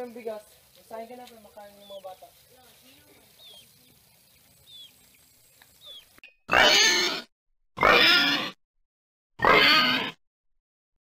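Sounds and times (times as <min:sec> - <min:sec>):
faint high bird chirps: 0:01.4 - 0:06.2
pig squealing loudly: 0:06.5 - 0:08.6, 0:09.4 - 0:10.2.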